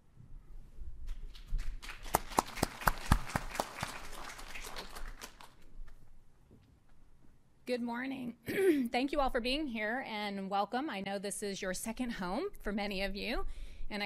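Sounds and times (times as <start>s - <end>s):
audience applause: 1.6s - 5.6s.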